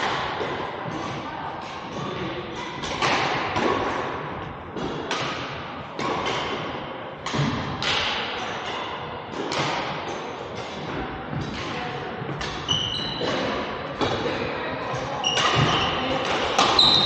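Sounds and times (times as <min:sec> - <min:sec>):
rackets hitting shuttlecocks: 0:00.0 - 0:17.0.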